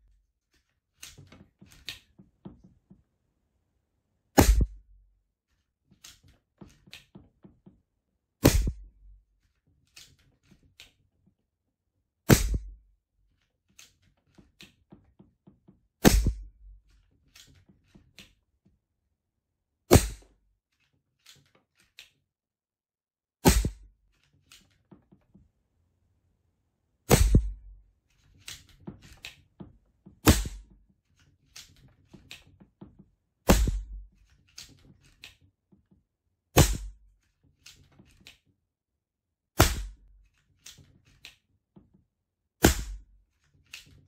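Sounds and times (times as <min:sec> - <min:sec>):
air pistol shots: 0:04.4 - 0:04.8, 0:08.4 - 0:08.9, 0:12.3 - 0:12.7, 0:16.0 - 0:16.5, 0:19.9 - 0:20.3, 0:23.4 - 0:23.8, 0:27.1 - 0:27.6, 0:30.2 - 0:30.7, 0:33.5 - 0:34.0, 0:36.6 - 0:37.0, 0:39.6 - 0:40.0, 0:42.6 - 0:43.0.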